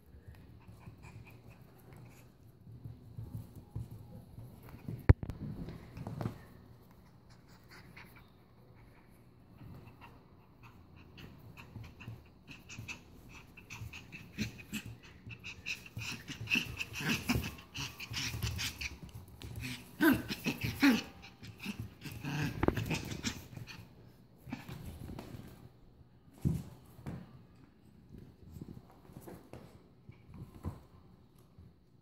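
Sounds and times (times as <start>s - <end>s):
puppy growling: 9.7s - 23.8s.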